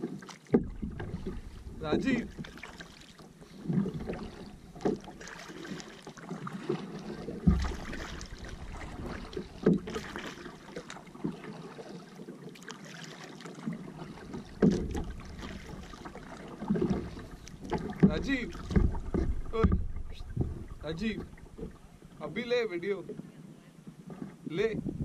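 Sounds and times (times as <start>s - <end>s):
paddle splashing in water: 0.0s - 25.0s
knocks: 17.7s - 21.8s.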